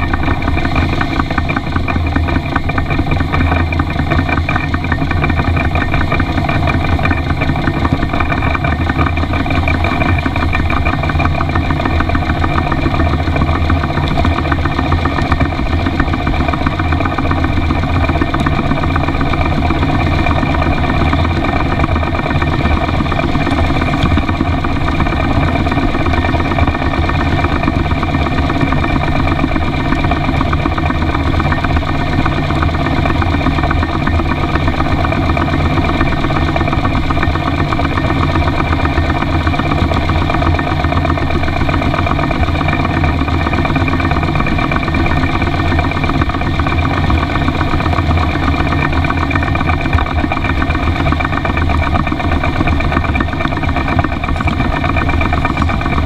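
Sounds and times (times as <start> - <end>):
model steam locomotive exhaust beat: 0.0 - 56.0.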